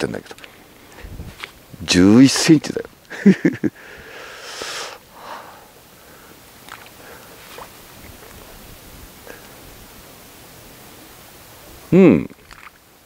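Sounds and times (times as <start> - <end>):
faint clicks and rustles: 0.1 - 1.7
man chuckling: 3.1 - 3.9
nose sniff: 4.2 - 5.0.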